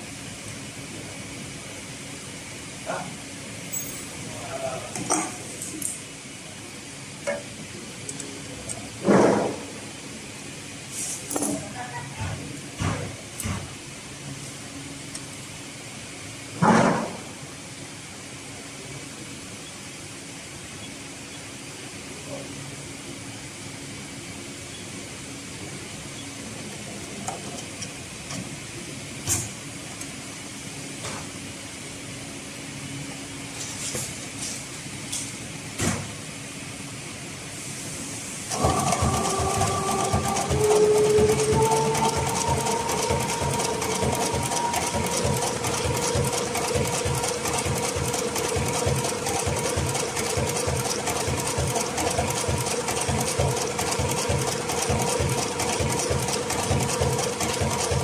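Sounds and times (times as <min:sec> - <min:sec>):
sewing machine stitching: 0:38.5 - 0:58.0.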